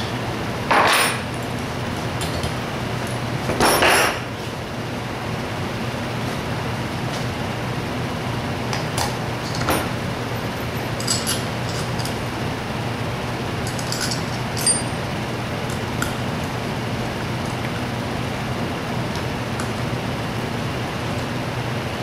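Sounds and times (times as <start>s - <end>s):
steady background hum: 0.0s - 22.0s
small metal parts clinking: 11.0s - 12.2s, 13.6s - 15.0s.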